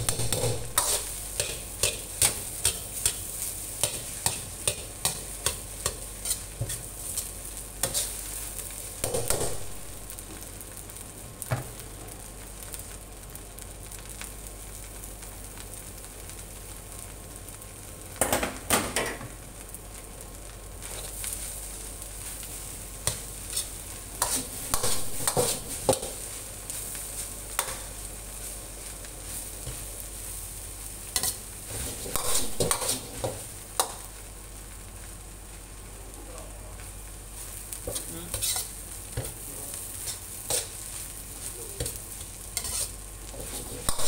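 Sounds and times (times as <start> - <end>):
rice sizzling in a wok: 0.0 - 44.0
metal ladle scraping wok: 38.3 - 38.7, 42.6 - 44.0.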